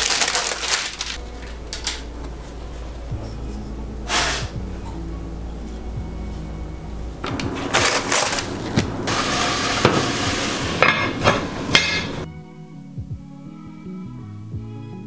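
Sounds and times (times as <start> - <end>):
soft background music: 0.0 - 15.0
iron pot lid clanking: 7.2 - 12.3.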